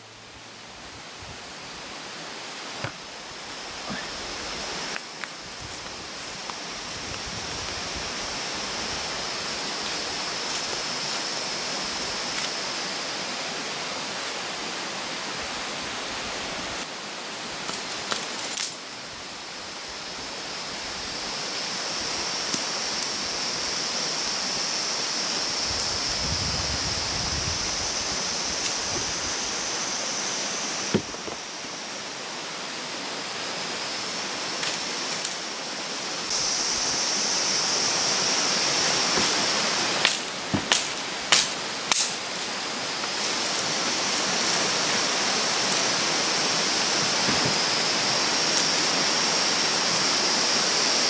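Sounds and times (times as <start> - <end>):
river water rushing: 0.0 - 25.7, 27.6 - 51.0
high-pitched whine: 3.3 - 13.7, 19.5 - 32.5, 33.6 - 42.2, 42.8 - 51.0
sharp knocks: 30.9 - 31.4.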